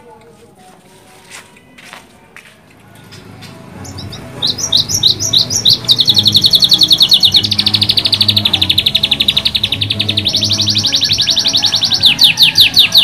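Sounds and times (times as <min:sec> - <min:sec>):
canary trilling: 0:03.7 - 0:13.0.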